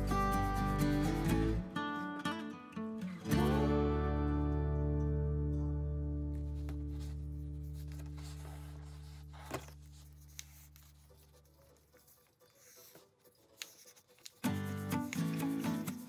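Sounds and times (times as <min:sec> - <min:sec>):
folded paper rustling and tapping: 0:06.4 - 0:11.0.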